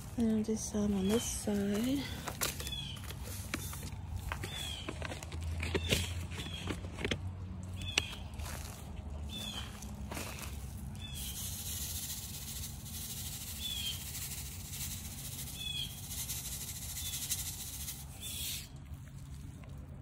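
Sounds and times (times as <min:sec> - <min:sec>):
steady hiss and low rumble: 0:00.0 - 0:04.4
bird chirping: 0:00.7 - 0:03.8, 0:04.4 - 0:05.1, 0:07.7 - 0:08.3, 0:09.3 - 0:09.8, 0:11.0 - 0:11.5, 0:13.5 - 0:14.2, 0:15.4 - 0:16.1, 0:16.8 - 0:17.4, 0:18.2 - 0:18.6.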